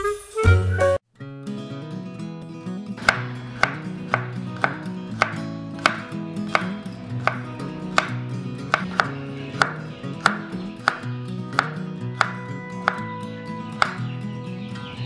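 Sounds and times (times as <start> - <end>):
background music: 0.0 - 1.0, 3.0 - 15.0
knife chopping on wooden board: 3.0 - 13.1, 13.8 - 14.0.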